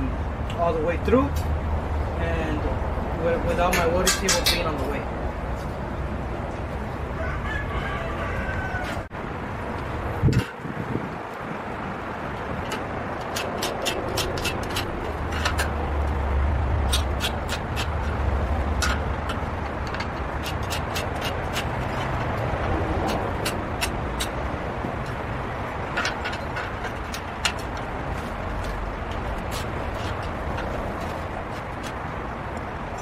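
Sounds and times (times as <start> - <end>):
steel tools tapping steel tubing: 3.6 - 5.0, 12.6 - 15.9, 16.8 - 24.4.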